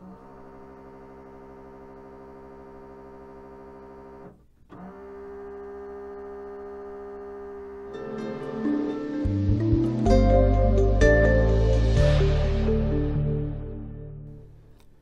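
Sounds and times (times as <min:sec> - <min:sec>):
vcr mechanism whirring: 0:00.0 - 0:08.6.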